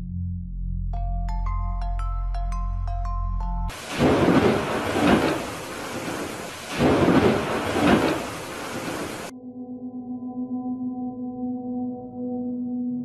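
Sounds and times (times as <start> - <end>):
ambient music tones: 0.0 - 13.0
rain hissing: 3.7 - 9.3
thunder rolling: 3.7 - 9.3.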